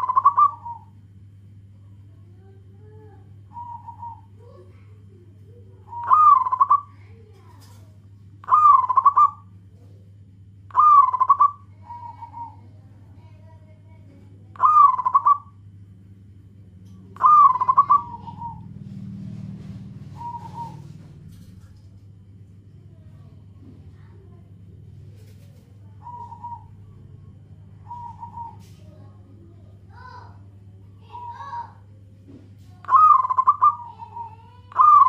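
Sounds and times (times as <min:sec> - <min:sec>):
dove cooing: 0:00.0 - 0:01.0, 0:02.8 - 0:07.8, 0:08.4 - 0:09.5, 0:10.7 - 0:13.3, 0:14.5 - 0:15.6, 0:17.0 - 0:21.8, 0:25.0 - 0:29.2, 0:31.0 - 0:31.8, 0:32.8 - 0:35.0.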